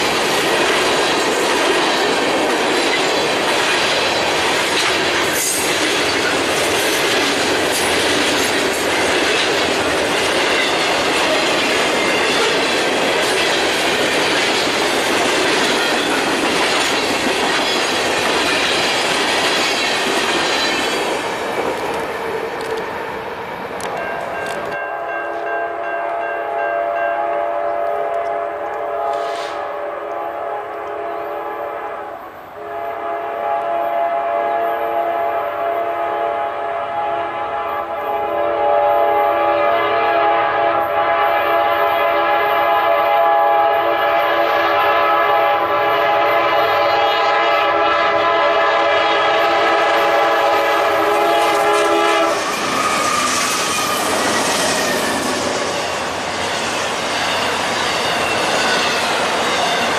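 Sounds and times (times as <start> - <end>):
train engines and wheels rumbling: 0.0 - 59.9
locomotive air horn blasts: 26.1 - 54.2.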